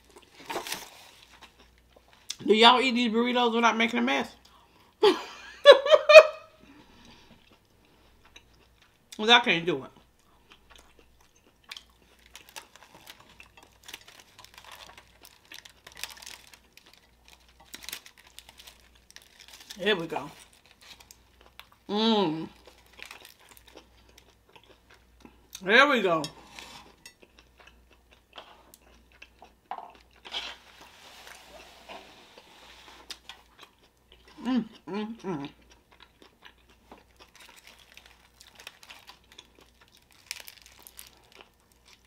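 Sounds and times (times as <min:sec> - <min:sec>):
aluminium foil crinkling: 0:00.0 - 0:01.6, 0:11.7 - 0:21.7, 0:22.5 - 0:24.3, 0:37.0 - 0:42.0
person chewing food: 0:00.0 - 0:02.4, 0:06.7 - 0:09.2, 0:10.0 - 0:19.7, 0:20.4 - 0:21.9, 0:22.5 - 0:25.6, 0:26.2 - 0:42.0.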